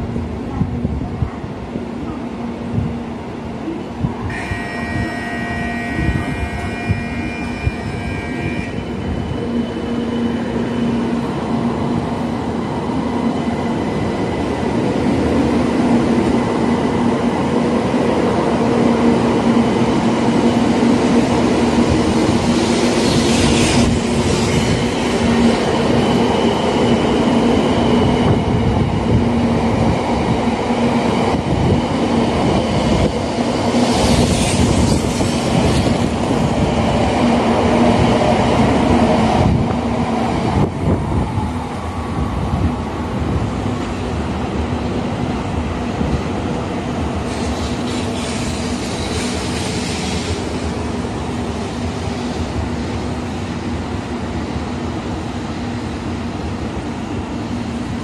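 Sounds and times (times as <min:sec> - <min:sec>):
train hum and wheel rumble: 0:00.0 - 0:58.0.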